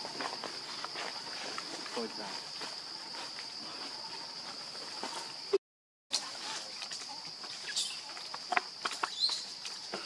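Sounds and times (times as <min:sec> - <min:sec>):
high-pitched insect drone: 0:00.0 - 0:05.6.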